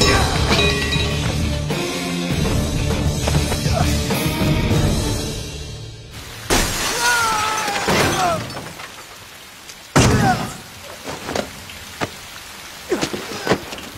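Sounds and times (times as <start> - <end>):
impact with breaking glass: 6.5 - 9.1
person crying out: 6.9 - 8.5
person yelling: 6.9 - 8.5.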